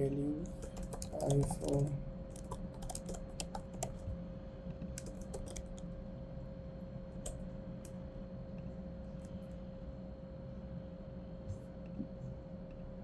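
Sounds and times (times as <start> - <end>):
faint steady hum: 0.0 - 13.0
keyboard typing: 0.5 - 4.0, 4.9 - 5.8.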